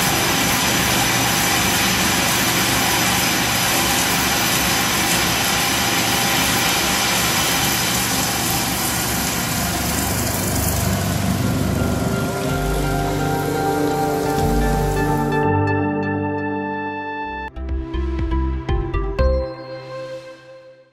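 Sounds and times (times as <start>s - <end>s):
music with held tones: 11.3s - 20.9s.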